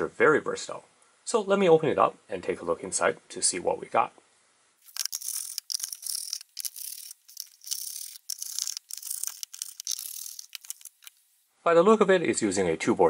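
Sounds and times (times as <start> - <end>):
screwdriver rasping on screws: 4.8 - 11.3.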